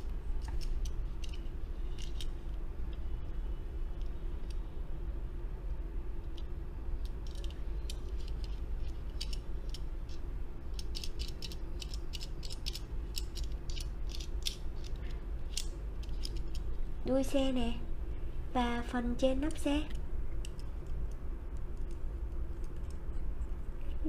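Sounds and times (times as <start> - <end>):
faint steady hum: 0.0 - 24.0
toy car clicking in fingers: 7.0 - 16.6.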